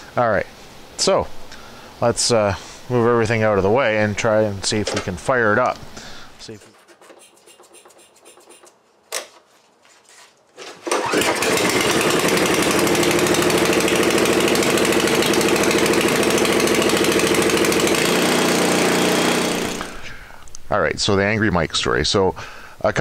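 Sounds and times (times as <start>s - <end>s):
small engine running: 10.8s - 20.1s.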